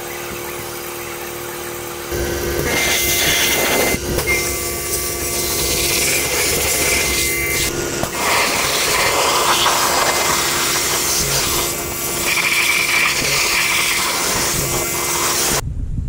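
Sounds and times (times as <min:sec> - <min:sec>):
faint hum: 0:00.0 - 0:16.0
pressure washer spray hissing: 0:02.8 - 0:15.6.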